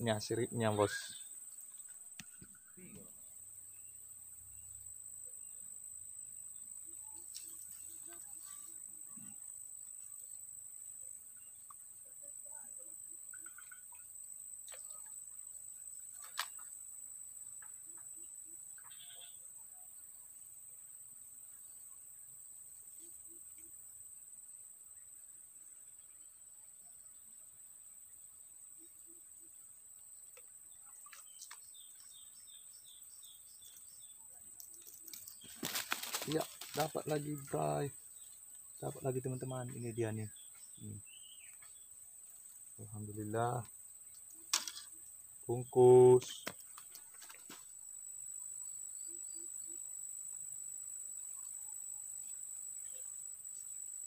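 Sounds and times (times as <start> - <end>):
insects droning: 0.0 - 54.0
steady high-pitched hiss: 0.0 - 54.0
faint rustles: 34.7 - 37.6
bird chirping: 40.0 - 42.0.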